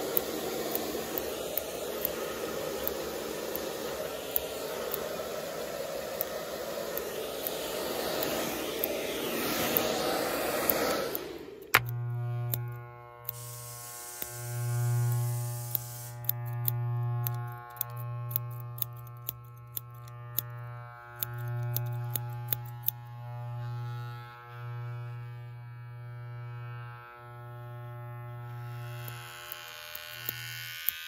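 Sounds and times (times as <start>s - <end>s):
hiss: 0.0s - 11.8s, 13.3s - 14.5s, 15.1s - 16.2s
sharp clicks: 0.0s - 23.1s, 28.9s - 31.0s
electric hair clippers buzzing: 0.0s - 31.0s.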